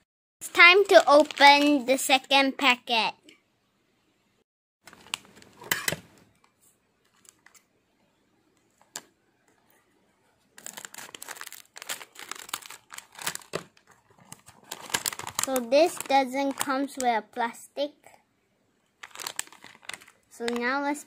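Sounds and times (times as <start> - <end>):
plastic wrapper crinkling: 0.5 - 2.4, 4.9 - 5.7, 7.0 - 7.7, 10.6 - 17.1, 19.0 - 20.7.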